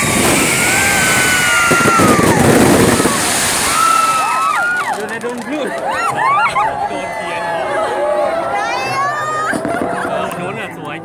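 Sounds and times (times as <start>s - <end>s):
firework whistles gliding down: 0.0s - 5.0s
fireworks crackling: 0.0s - 6.1s.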